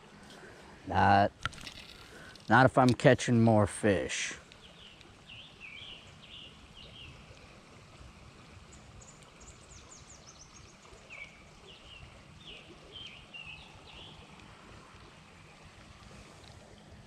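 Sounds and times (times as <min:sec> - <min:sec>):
songbirds chirping: 0:03.8 - 0:07.5, 0:08.6 - 0:16.2.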